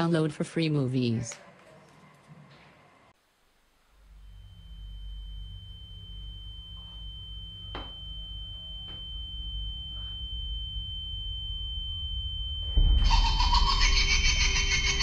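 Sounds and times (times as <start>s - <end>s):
high-pitched ringing tone: 3.9s - 15.0s
low rumbling drone: 4.0s - 15.0s.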